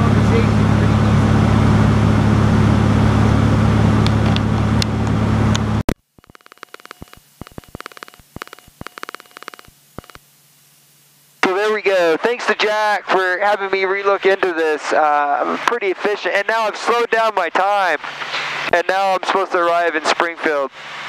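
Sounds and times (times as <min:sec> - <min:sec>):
aircraft engine and propeller drone: 0:00.0 - 0:05.8
headset clicks and rustles: 0:06.2 - 0:10.2.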